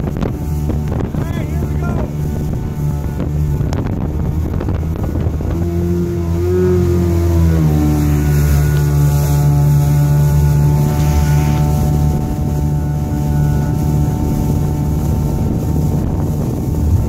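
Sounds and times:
rushing water: 0:00.0 - 0:17.0
speedboat engine droning: 0:00.0 - 0:17.0
wind on microphone: 0:00.0 - 0:17.0.

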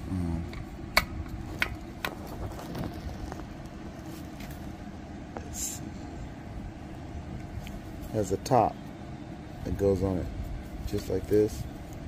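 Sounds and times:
low background rumble: 0:00.0 - 0:12.0.

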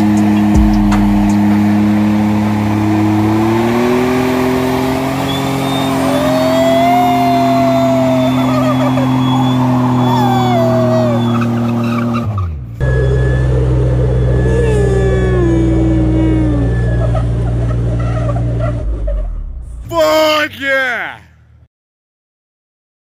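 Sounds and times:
engine at high revs: 0:00.0 - 0:19.7
tyre squealing: 0:05.2 - 0:12.5.

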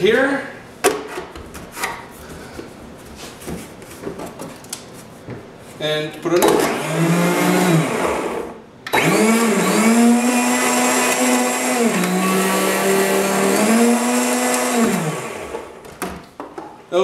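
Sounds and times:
blender running: 0:06.5 - 0:15.8.

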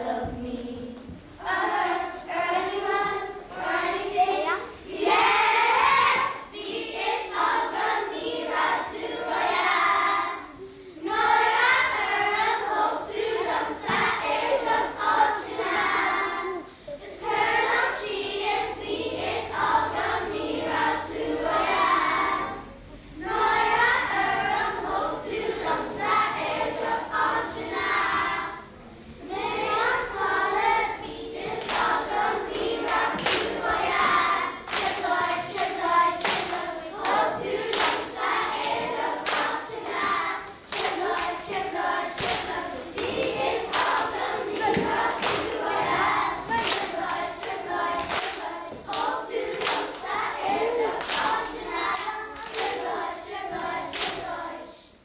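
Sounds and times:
children's choir singing: 0:00.0 - 0:55.0
hand-clapping in time: 0:32.9 - 0:38.0, 0:46.6 - 0:50.1.

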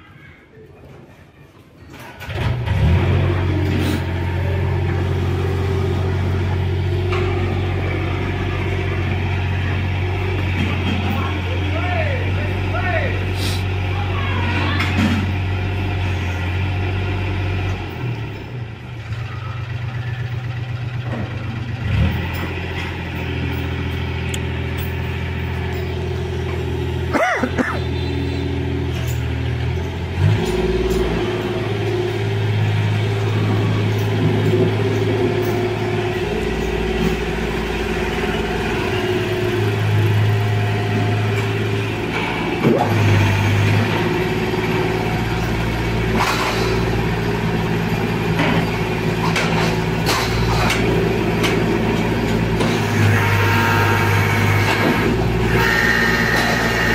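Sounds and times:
hydraulic power unit engine: 0:01.9 - 0:56.9.

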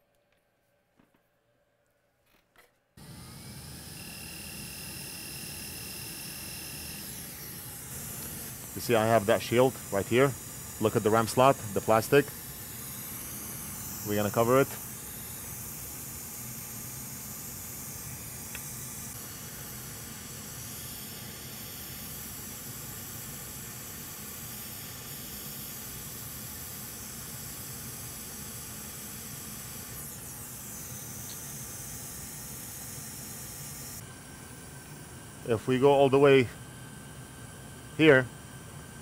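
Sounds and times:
hot air blower hissing: 0:03.0 - 0:39.0.

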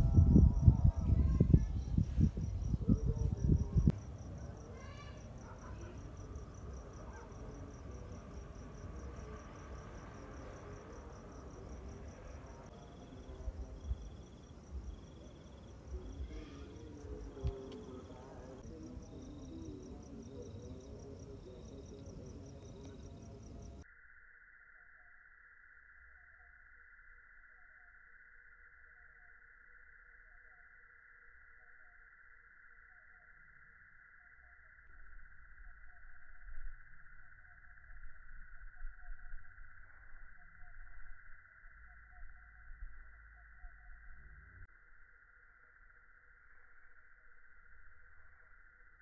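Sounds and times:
loud low rumbling: 0:00.0 - 0:03.9
crickets chirping: 0:00.0 - 0:49.0.

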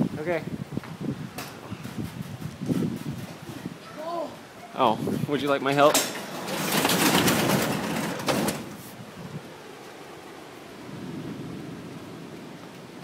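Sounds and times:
rush of wind: 0:00.0 - 0:13.0
garage door rattling and rumbling: 0:05.8 - 0:08.8.

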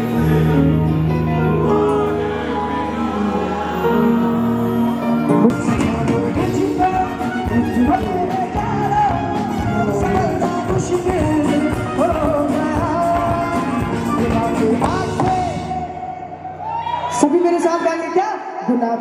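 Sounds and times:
drums keeping a beat: 0:05.4 - 0:15.8.

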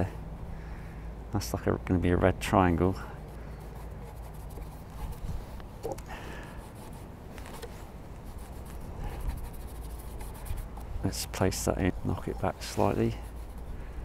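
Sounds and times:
brush scraping paint on panel: 0:03.3 - 0:05.6, 0:06.5 - 0:10.9, 0:12.6 - 0:13.7.

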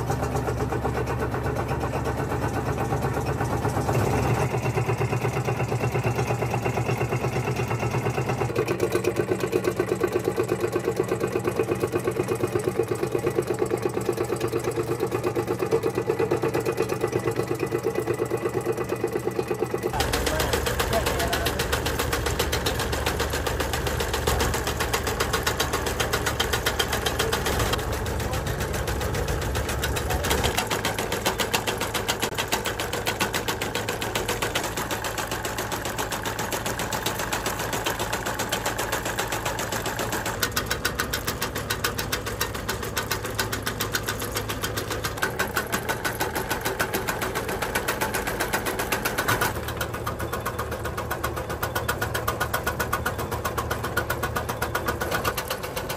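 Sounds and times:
cutter clattering: 0:19.7 - 0:55.9.

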